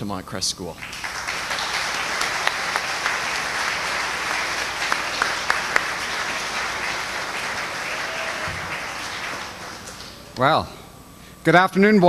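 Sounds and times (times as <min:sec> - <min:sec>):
children applauding: 0:00.8 - 0:10.4
louder single claps: 0:00.8 - 0:10.4.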